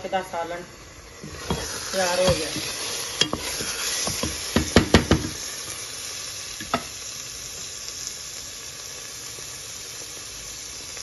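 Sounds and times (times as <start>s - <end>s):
curry sizzling in metal pot: 0.0s - 11.0s
utensil scraping pot: 1.1s - 5.6s.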